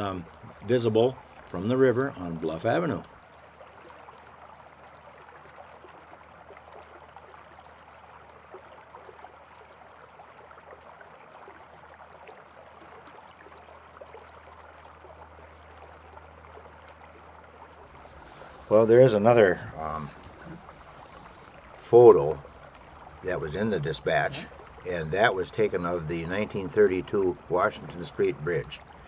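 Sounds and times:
faint steady rushing noise: 14.6s - 29.0s.

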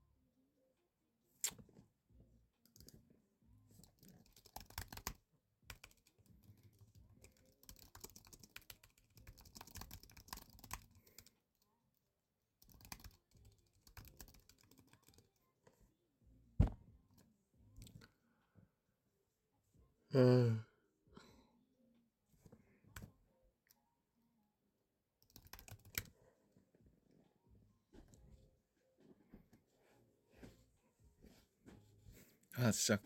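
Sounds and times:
typing on a keyboard: 3.8s - 11.3s, 12.6s - 15.4s, 25.2s - 26.1s.

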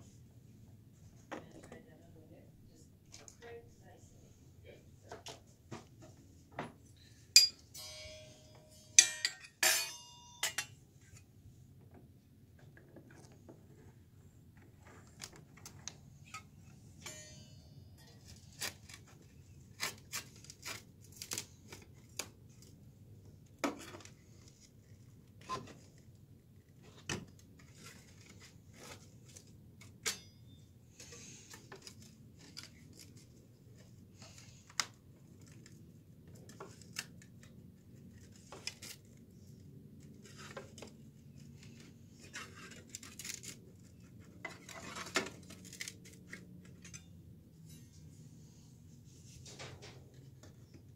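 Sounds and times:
metal tools clicking and scraping: 7.3s - 11.2s, 16.2s - 19.1s, 29.9s - 33.2s, 42.2s - 48.1s
metal parts clattering: 7.4s - 10.8s.

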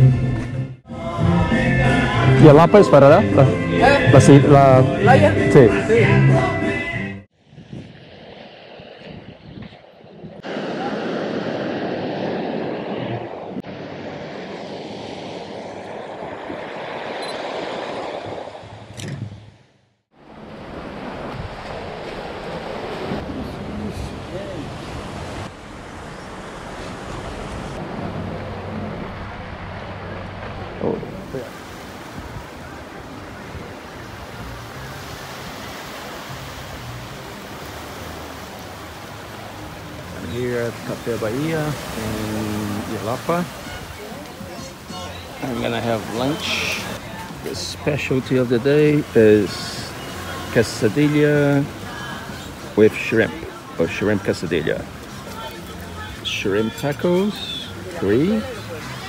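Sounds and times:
ocean surf: 0.0s - 59.0s
wind and sea water rushing: 0.0s - 59.0s
wind buffeting microphone: 7.4s - 19.6s, 20.3s - 53.7s.

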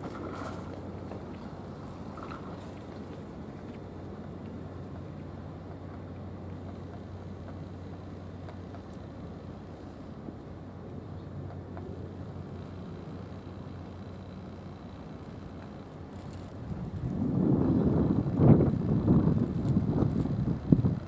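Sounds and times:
faint ticks: 5.9s - 9.1s.

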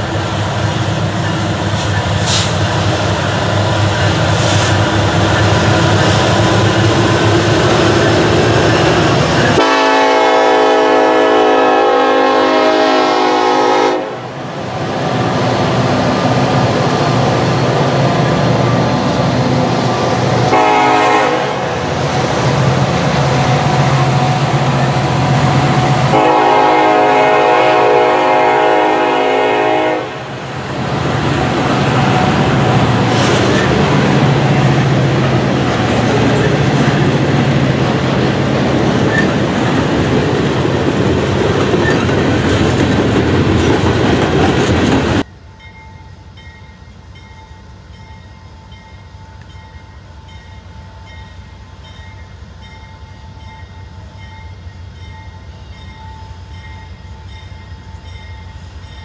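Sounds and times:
diesel locomotive rumble: 0.0s - 45.5s
train horn blasts: 9.6s - 14.4s, 20.4s - 21.9s, 23.2s - 30.4s.

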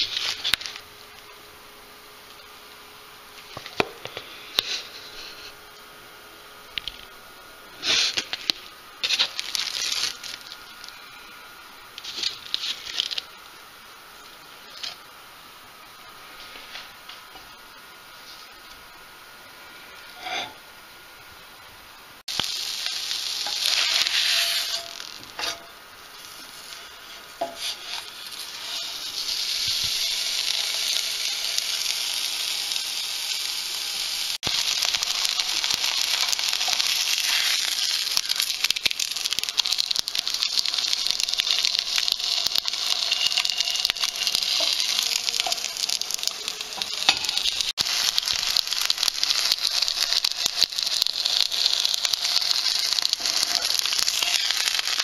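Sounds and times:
fish sizzling in a pan: 7.8s - 13.4s, 22.2s - 55.0s.

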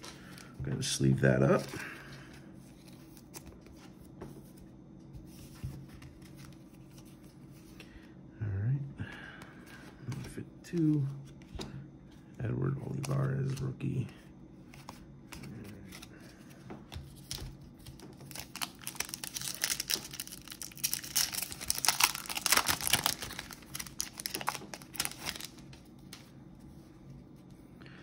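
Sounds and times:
foil wrapper crinkling and tearing: 17.2s - 26.2s.

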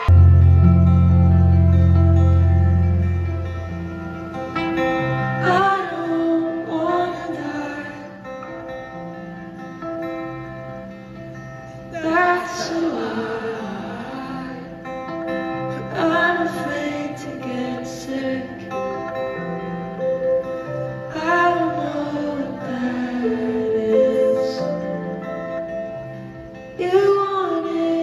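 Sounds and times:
live band: 0.0s - 13.2s
woman singing: 5.3s - 8.7s, 11.9s - 25.5s, 26.6s - 28.0s.

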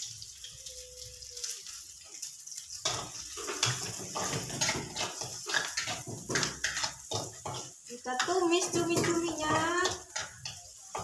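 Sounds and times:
onions sizzling in hot oil: 0.0s - 11.0s
metal spatula scraping a wok: 2.8s - 11.0s.

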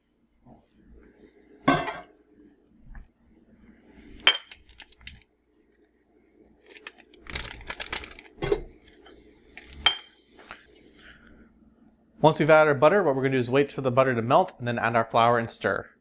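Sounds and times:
metal pot clanking on grate: 1.7s - 2.1s
paper crinkling: 6.5s - 9.8s.

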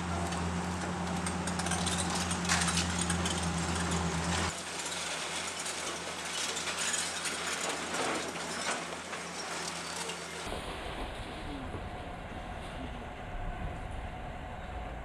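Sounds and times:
low engine hum: 10.5s - 15.0s.

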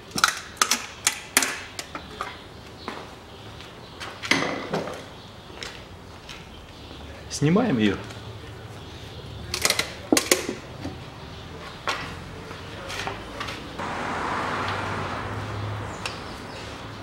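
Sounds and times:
steady rushing noise: 13.8s - 17.0s.

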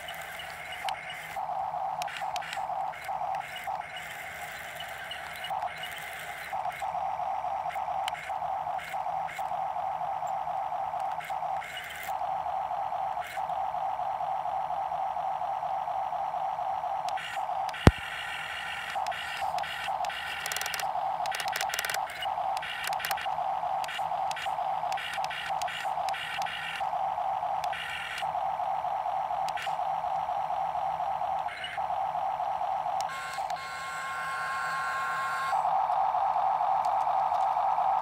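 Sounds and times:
toy excavator motors whining: 0.0s - 38.0s
sharp click: 17.7s - 18.0s.

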